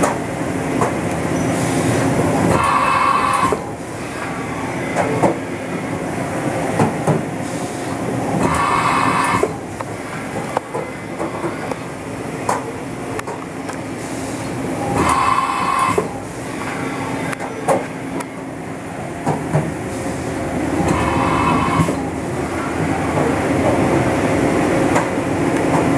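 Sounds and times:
machinery humming: 0.1 - 25.9
high-pitched machine noise bursts: 14.9 - 17.2, 20.8 - 22.2.

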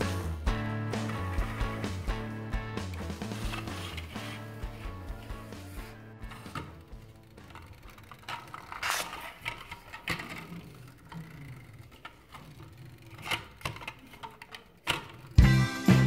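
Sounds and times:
toy car wheels rolling: 0.0 - 15.4
plastic toys clicking and rattling: 6.2 - 15.4
loud jingly music: 15.4 - 16.0.

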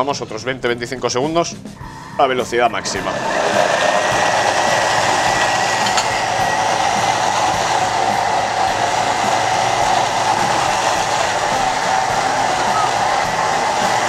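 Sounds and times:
kitchen robot motor whirring: 3.0 - 14.0.

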